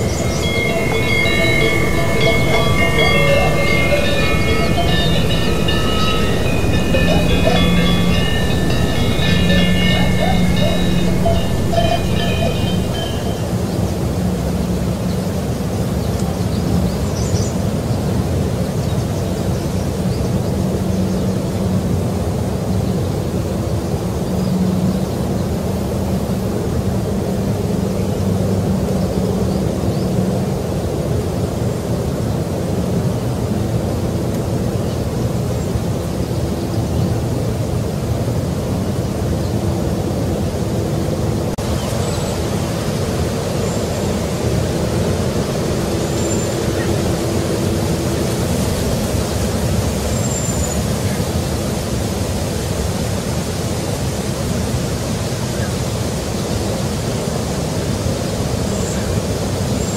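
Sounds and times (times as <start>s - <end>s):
faint high chirps: 0.0s - 13.5s
low rumbling noise: 0.0s - 13.8s.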